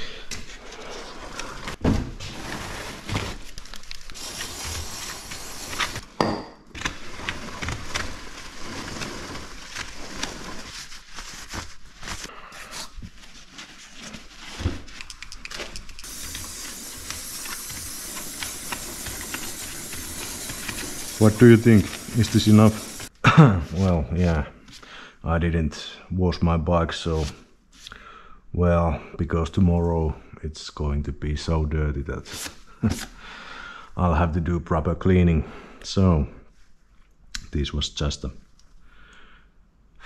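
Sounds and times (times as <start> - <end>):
aerosol spray hissing: 4.2 - 6.0, 15.8 - 23.1.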